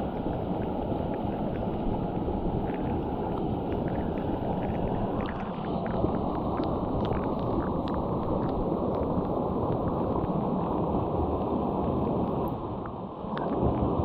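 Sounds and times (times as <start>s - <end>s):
creek water rushing: 0.0s - 14.0s.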